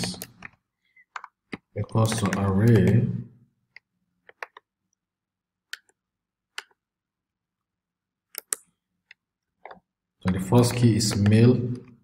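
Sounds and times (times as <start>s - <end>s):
keyboard key clicks: 0.0s - 3.0s, 9.6s - 11.9s.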